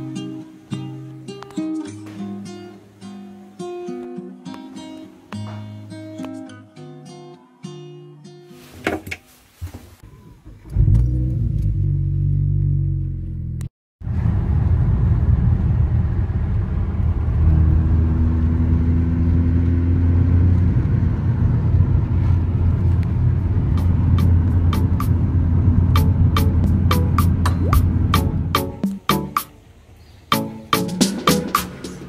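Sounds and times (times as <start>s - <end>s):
car engine and road noise: 10.4s - 32.0s.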